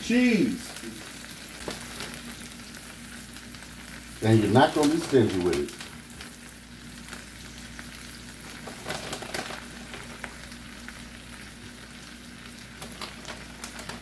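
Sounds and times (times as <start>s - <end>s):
potatoes sizzling in skillet: 0.0s - 14.0s
loud crackles: 8.5s - 10.5s.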